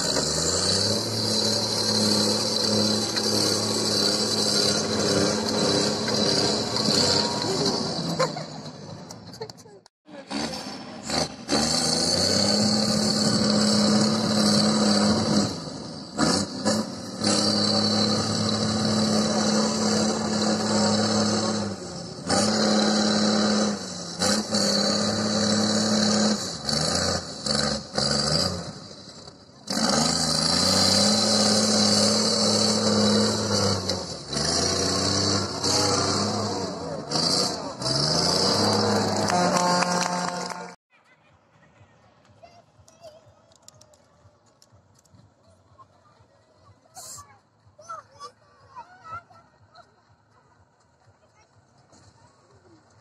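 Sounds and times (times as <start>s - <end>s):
truck diesel engine running hard: 0.0s - 9.3s, 10.1s - 40.8s.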